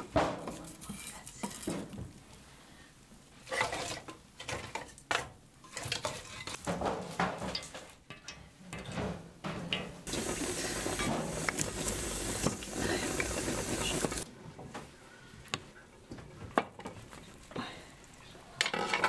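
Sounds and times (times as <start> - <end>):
wood fire crackling: 0.0 - 6.7, 10.0 - 14.3, 16.6 - 18.8
water running and splashing: 10.1 - 14.3.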